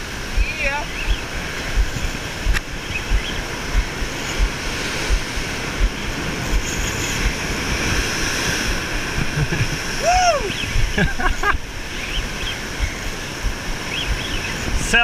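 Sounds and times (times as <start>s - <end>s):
surf breaking against rocks: 0.0s - 11.9s
wind on microphone: 0.0s - 15.0s.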